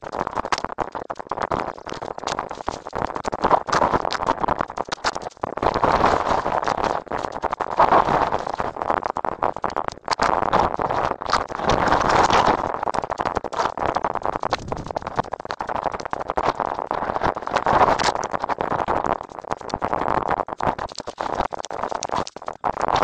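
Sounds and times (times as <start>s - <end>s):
microphone handling noise: 14.2s - 18.0s.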